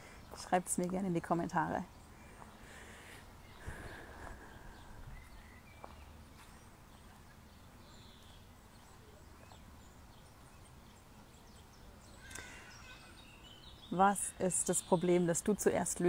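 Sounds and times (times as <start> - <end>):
faint bird chirps: 3.4 - 15.2.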